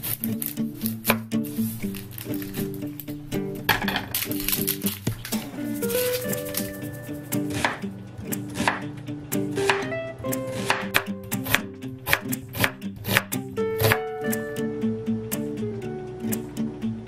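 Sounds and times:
soft background music: 0.0s - 17.0s
knife chopping on wooden board: 7.5s - 7.8s, 8.5s - 8.8s, 9.6s - 9.9s, 10.5s - 14.0s.

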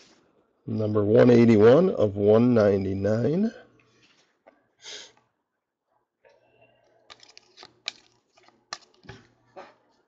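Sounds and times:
handling trading cards: 6.9s - 9.5s
foil pack crinkling: 7.1s - 9.2s.

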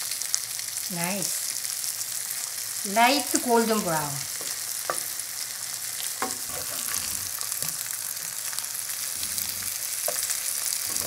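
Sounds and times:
butter sizzling in a skillet: 0.0s - 11.0s
skewers knocking in a pan: 4.3s - 5.2s, 6.1s - 7.8s, 10.0s - 11.0s.

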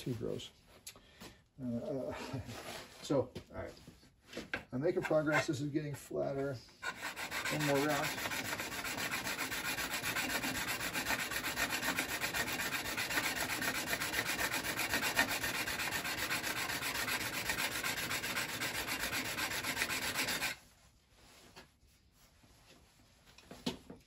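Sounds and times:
scraper grinding on sharpening stone: 6.8s - 20.6s.

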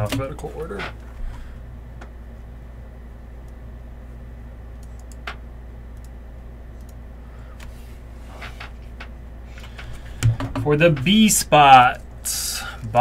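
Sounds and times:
steady low hum: 0.0s - 13.0s
computer mouse clicks: 4.8s - 5.4s, 6.0s - 6.2s, 6.8s - 7.0s.

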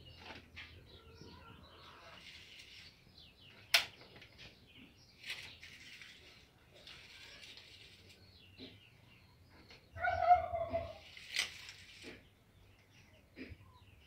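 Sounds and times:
straw rustling: 1.8s - 3.4s, 5.2s - 8.7s, 10.6s - 12.3s.

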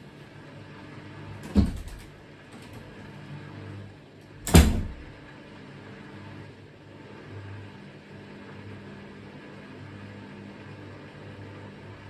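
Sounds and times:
drain pump hum: 0.0s - 5.4s.

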